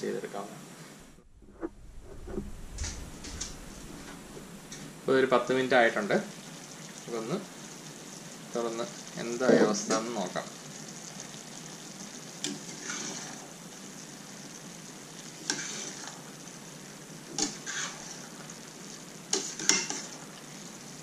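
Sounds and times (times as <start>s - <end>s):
gravy bubbling and sizzling in a pan: 2.6s - 21.0s
spoon scraping and knocking pan: 19.4s - 20.1s.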